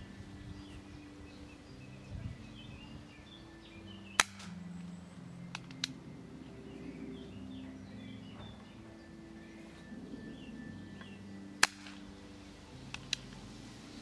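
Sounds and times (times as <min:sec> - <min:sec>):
airsoft revolver shot: 0:04.2 - 0:04.6, 0:11.6 - 0:12.0
faint clicks: 0:05.5 - 0:06.0.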